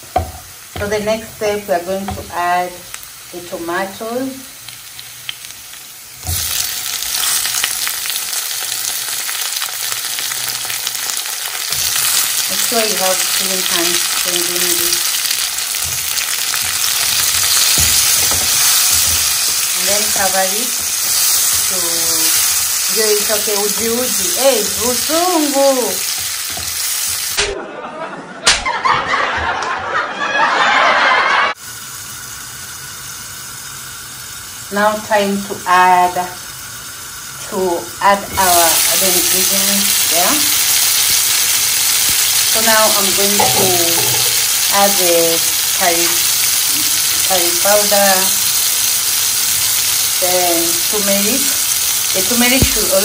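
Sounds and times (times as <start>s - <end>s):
tomatoes sizzling in frying pan: 0.0s - 27.6s, 31.5s - 53.0s
sharp smack: 28.5s - 28.7s
person's vocal outburst: 43.4s - 44.4s.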